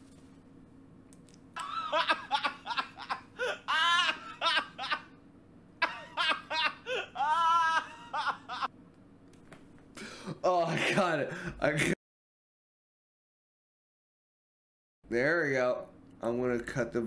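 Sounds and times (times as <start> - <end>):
young man laughing: 1.6 - 5.2, 5.8 - 8.7, 10.1 - 12.0.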